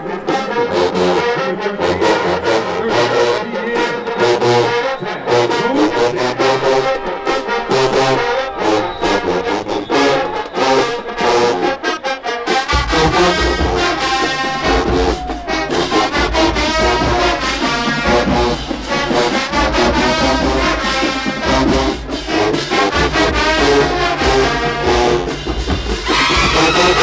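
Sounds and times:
marching band brass: 0.0s - 27.0s
pulsing low beat: 12.7s - 27.0s.

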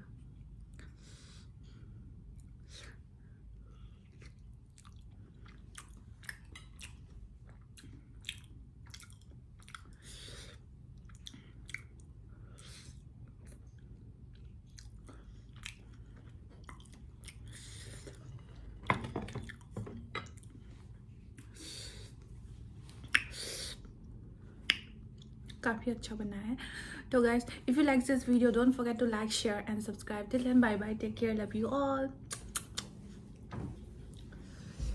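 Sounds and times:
person chewing close to microphone: 3.7s - 18.8s, 22.8s - 25.6s, 32.3s - 32.9s
mouth clicks and smacks: 4.2s - 10.1s, 11.0s - 12.2s, 14.4s - 17.6s, 22.9s - 25.6s, 32.2s - 33.0s.

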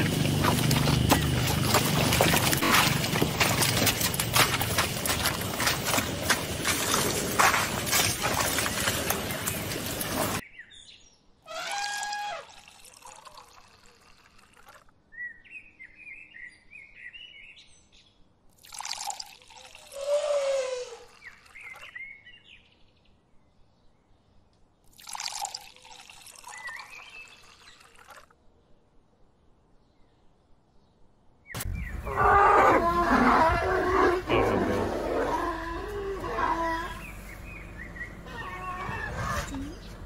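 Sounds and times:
mud splashing and sloshing: 0.0s - 10.4s
bird chirps: 36.7s - 40.0s.

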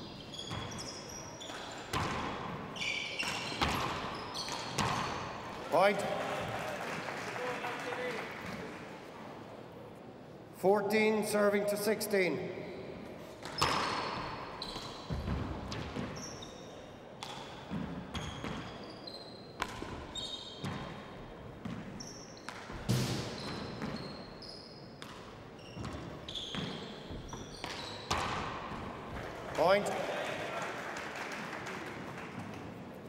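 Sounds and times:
shoes squeaking on wooden floor: 0.0s - 2.0s, 23.3s - 28.2s.

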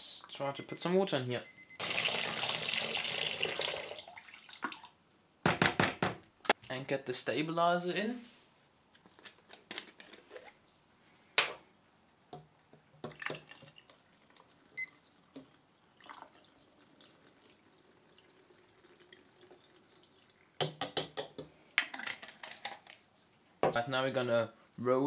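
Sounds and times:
liquid trickling: 1.8s - 5.0s, 13.1s - 20.6s
bottle and tank clicks and knocks: 20.6s - 22.0s.

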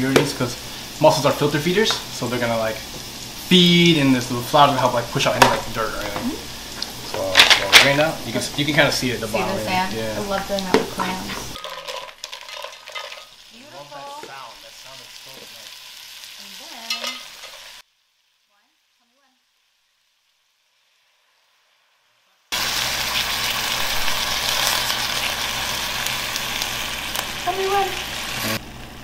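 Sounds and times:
loud steady hiss: 0.0s - 11.6s, 13.3s - 18.2s, 19.8s - 29.0s
mussels sizzling in a pot: 0.0s - 29.0s
shells clattering in a pot: 7.3s - 8.1s, 10.3s - 13.5s, 16.8s - 17.8s.

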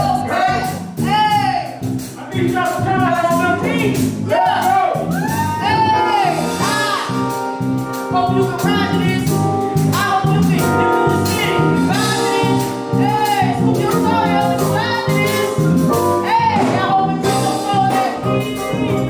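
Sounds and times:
live band playing slow groove: 0.0s - 19.0s
person singing: 8.3s - 19.0s.

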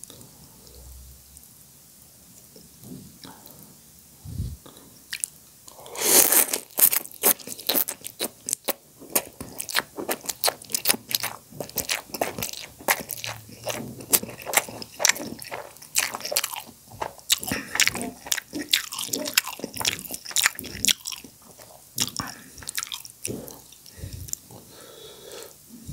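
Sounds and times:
slurping noodles: 5.7s - 7.9s, 9.1s - 24.4s
wet chewing: 6.1s - 24.6s.

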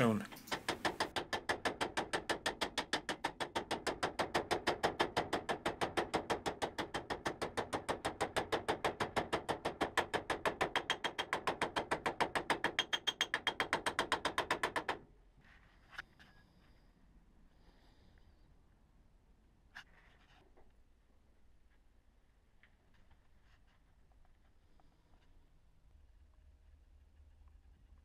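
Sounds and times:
hammer beating sheet metal: 0.4s - 15.0s.

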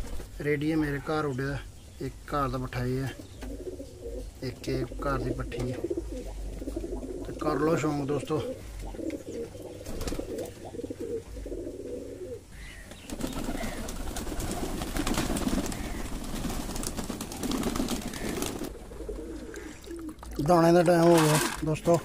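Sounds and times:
wings fluttering: 0.0s - 0.4s, 8.6s - 12.0s, 12.8s - 22.0s
pigeons cooing: 2.4s - 22.0s.

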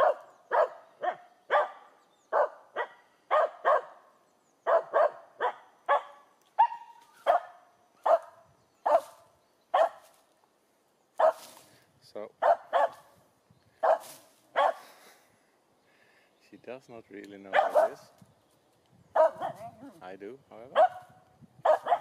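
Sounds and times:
dog barking: 0.0s - 4.0s, 4.6s - 10.0s, 11.2s - 11.6s, 12.4s - 13.1s, 13.8s - 14.8s, 17.5s - 18.0s, 19.2s - 19.8s, 20.7s - 22.0s.

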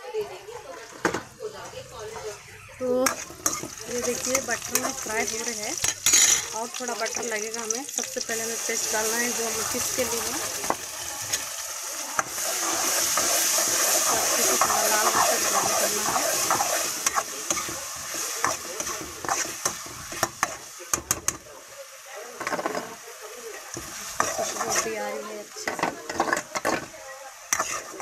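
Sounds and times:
paste sizzling in butter: 2.2s - 28.0s
spatula scraping a pan: 3.0s - 7.3s, 8.4s - 21.4s, 22.4s - 23.0s, 23.8s - 28.0s.

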